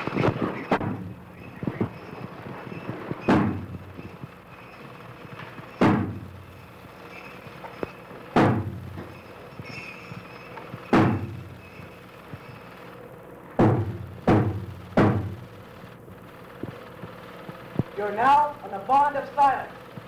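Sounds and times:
deep drum beats: 5.8 - 6.3, 8.4 - 9.2, 13.6 - 15.5.

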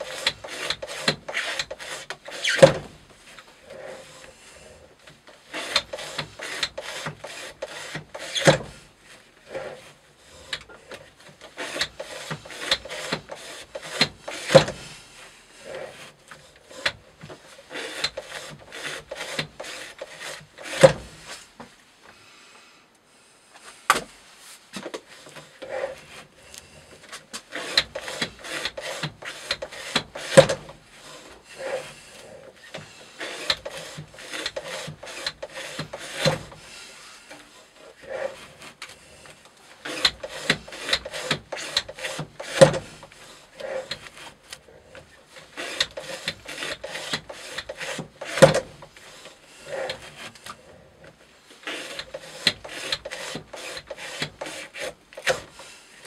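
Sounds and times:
knife blade cutting rope: 0.0 - 2.9, 5.5 - 8.7, 11.4 - 14.8, 17.7 - 21.3, 27.4 - 36.7, 38.0 - 44.6, 45.3 - 50.7, 51.6 - 55.7.

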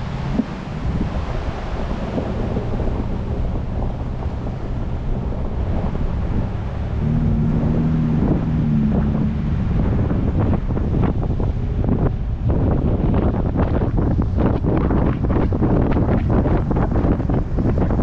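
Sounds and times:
steady engine hum: 0.0 - 18.0
tyre and engine rumble: 0.0 - 18.0
wind buffeting microphone: 0.0 - 18.0.

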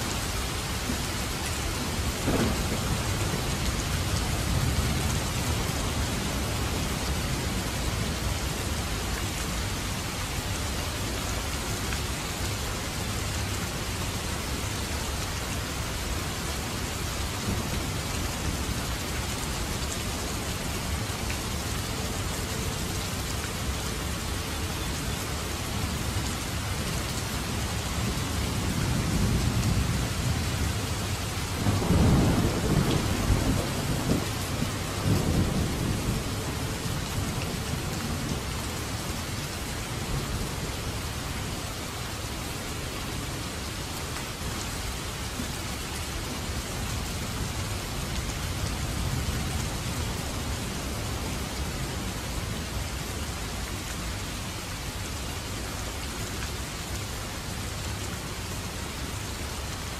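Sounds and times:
heavy rain falling: 0.0 - 59.9
low rumble of thunder: 1.9 - 8.2, 28.0 - 38.6.

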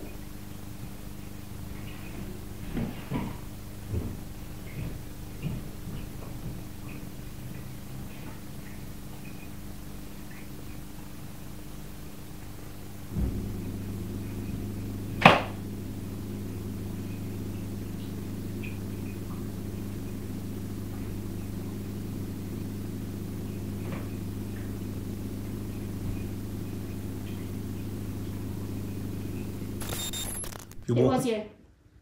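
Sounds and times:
steady low hum: 0.0 - 31.4
sharp knock: 15.2 - 15.6.

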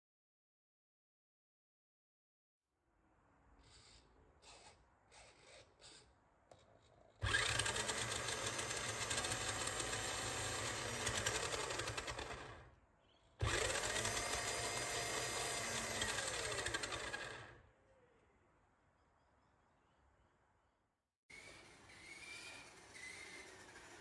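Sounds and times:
toy car motor and gears running: 3.7 - 6.1, 7.2 - 12.6, 13.4 - 17.6, 21.3 - 24.0.

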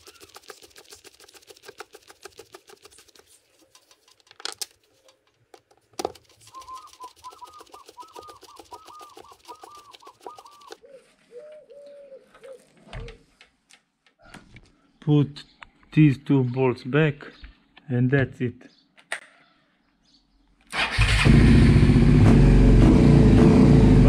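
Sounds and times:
bird calling: 0.0 - 1.6, 6.2 - 13.4.

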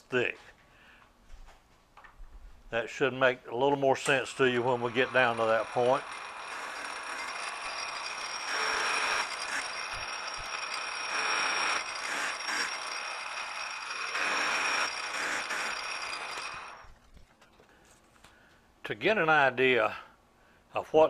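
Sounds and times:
metal lathe whining: 4.0 - 16.9.

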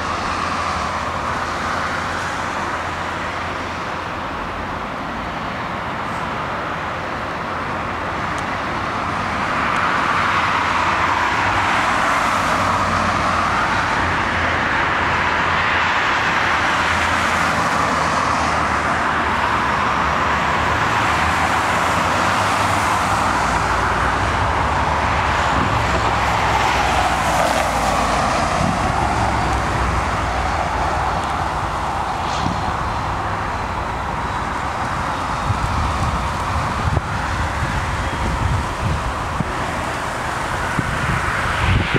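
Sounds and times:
mechanical rushing noise: 25.4 - 41.9.

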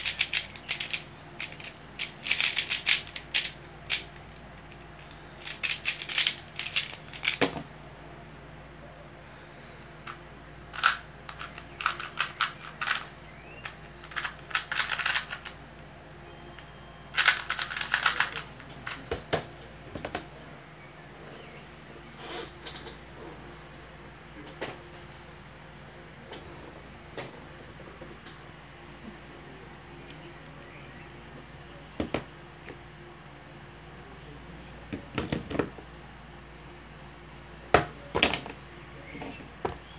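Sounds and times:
plastic puzzle cube clicking turns: 0.0 - 4.1, 5.0 - 7.5, 10.8 - 15.6, 17.2 - 19.0.

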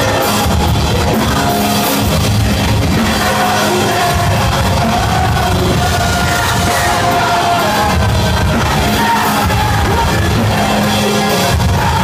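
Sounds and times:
metalcore band playing live: 0.0 - 12.0.

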